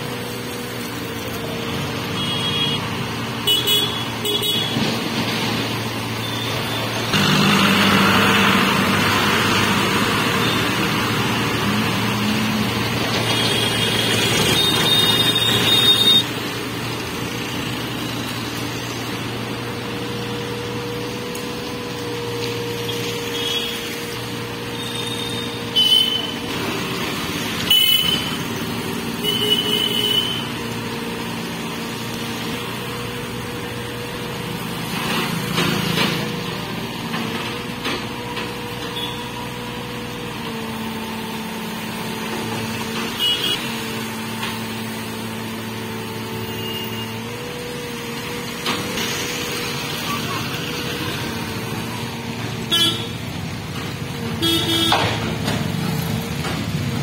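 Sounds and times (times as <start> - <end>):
excavator diesel engine running: 0.0 - 57.0
vehicle horn beeps: 2.2 - 2.9, 3.5 - 4.8, 13.3 - 16.2, 24.8 - 26.4, 27.7 - 28.4, 38.9 - 39.3, 43.2 - 43.7, 46.4 - 47.2, 52.7 - 53.2, 54.4 - 55.1.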